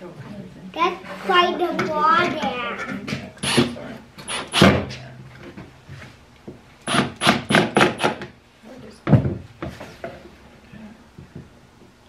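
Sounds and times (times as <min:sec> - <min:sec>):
voices: 0:00.0 - 0:04.2
cordless drill driving screw: 0:04.3 - 0:04.8
sharp wooden knock: 0:06.9 - 0:08.3.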